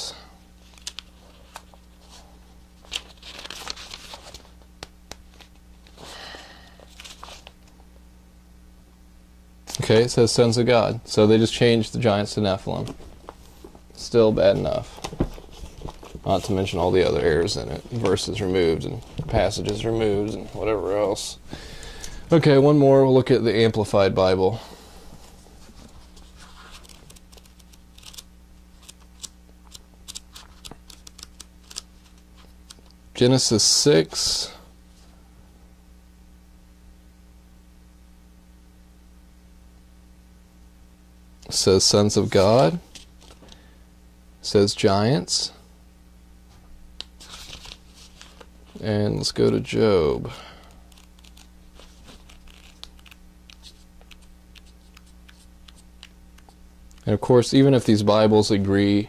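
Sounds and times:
faint electrical hum: 0.0s - 59.0s
pages turning rustle: 0.6s - 6.1s, 6.8s - 7.7s, 12.8s - 20.6s, 25.6s - 32.9s, 42.2s - 43.6s, 47.0s - 48.8s, 50.8s - 56.6s.

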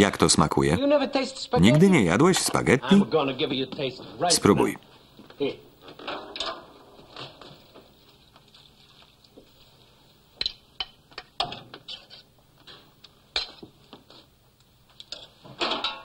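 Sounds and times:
cookware and dishes clinking: 1.6s - 3.0s, 5.9s - 7.8s, 10.4s - 13.7s, 15.1s - 16.0s.

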